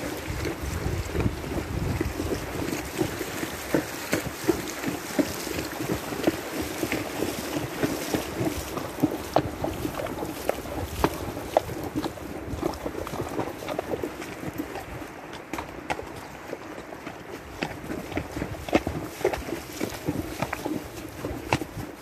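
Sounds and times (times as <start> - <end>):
hooves splashing through water: 0.0 - 22.0
wind rumbling on microphone: 0.0 - 22.0.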